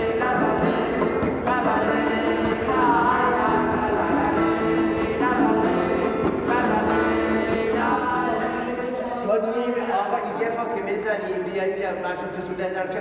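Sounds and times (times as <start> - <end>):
person singing long notes: 0.0 - 9.2
acoustic guitar: 0.0 - 10.6.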